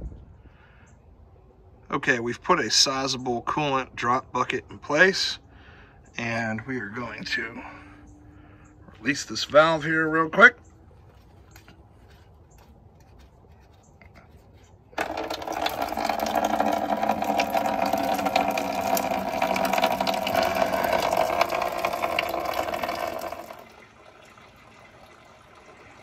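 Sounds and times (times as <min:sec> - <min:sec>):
coolant gushing into bucket: 0:15.0 - 0:26.0.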